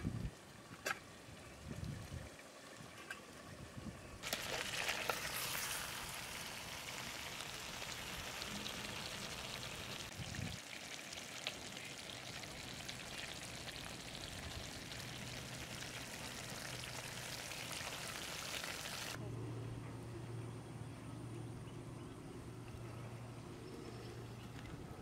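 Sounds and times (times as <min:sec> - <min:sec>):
curry bubbling and sizzling in pot: 0:04.2 - 0:19.2.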